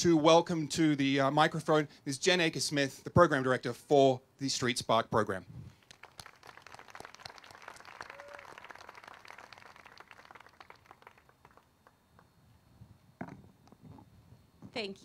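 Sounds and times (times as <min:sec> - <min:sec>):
crowd applauding: 0:05.8 - 0:12.0.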